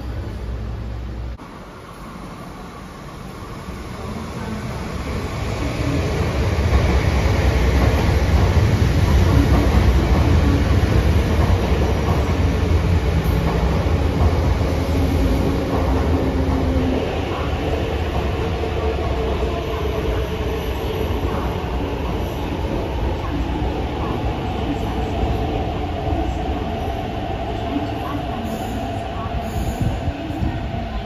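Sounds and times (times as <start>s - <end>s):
train wheels rumbling on rail: 0.0s - 31.0s.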